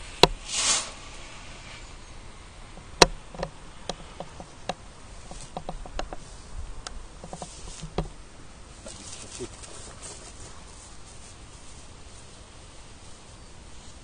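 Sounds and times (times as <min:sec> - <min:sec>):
sharp crackles and pops: 0:00.0 - 0:08.2
smoke grenade spitting smoke: 0:00.1 - 0:02.1.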